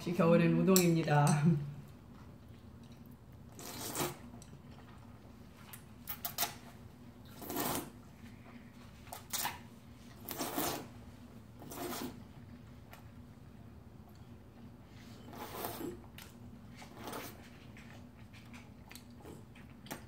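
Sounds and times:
noodles being slurped: 3.5 - 4.4, 7.3 - 8.0, 9.2 - 11.0, 11.6 - 12.3, 15.2 - 17.5.

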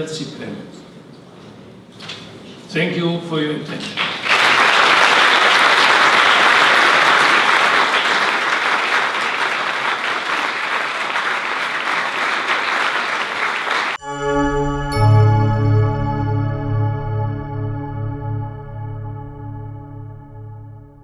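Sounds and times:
audience applauding: 4.0 - 14.0
music with long held tones: 14.0 - 21.0.

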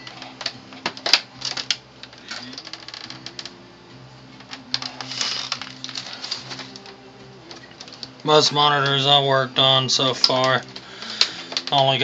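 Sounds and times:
plastic clicking and snapping: 0.0 - 3.6, 4.4 - 9.0, 10.2 - 11.8
plastic scraping: 4.4 - 9.0, 10.2 - 12.0.

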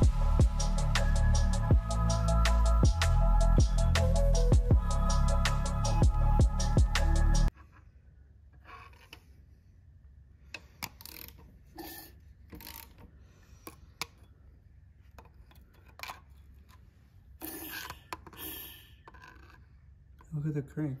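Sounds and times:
rubbing and scraping: 8.6 - 9.5.

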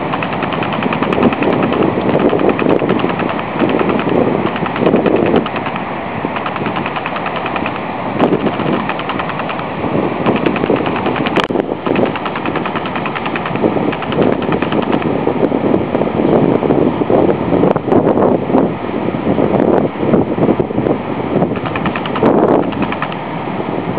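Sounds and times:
fast rattle of fine ticks: 0.0 - 15.1, 21.6 - 23.3
sharp click: 0.0 - 15.1, 21.6 - 23.2
wind buffeting microphone: 0.0 - 23.9.

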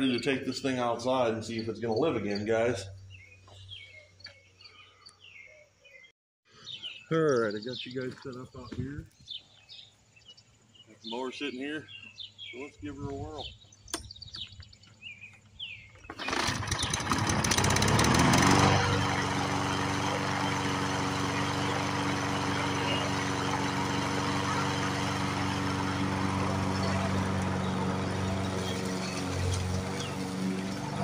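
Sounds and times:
lawn mower engine starting and running: 15.6 - 31.0.

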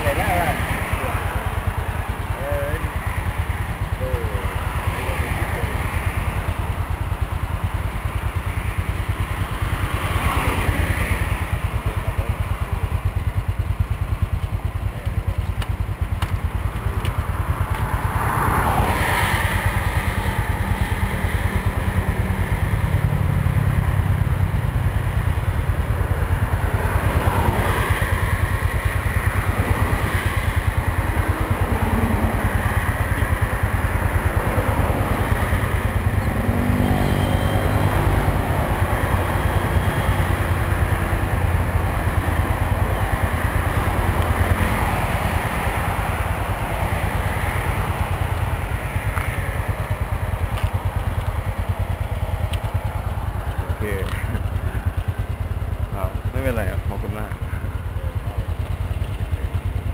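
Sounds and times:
vehicles passing by: 0.0 - 59.9.

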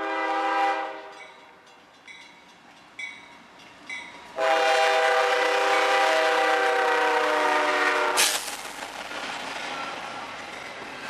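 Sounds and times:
locomotive air horn: 0.0 - 1.2, 4.4 - 8.4.

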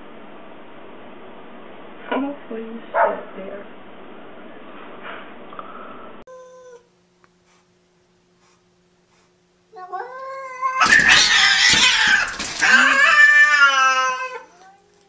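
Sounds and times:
cat yowling: 6.3 - 6.9, 9.8 - 15.0
cats hissing and screeching: 9.2 - 15.0.

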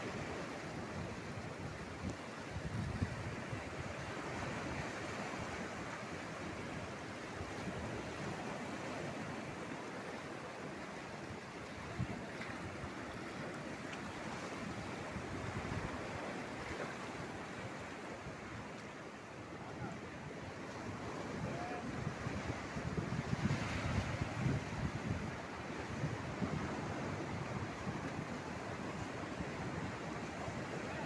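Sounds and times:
ocean surf on rocky shore: 0.0 - 31.0.

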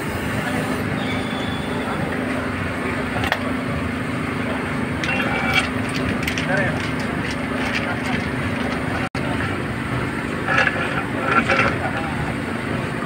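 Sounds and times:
machinery humming drone: 0.0 - 13.0.

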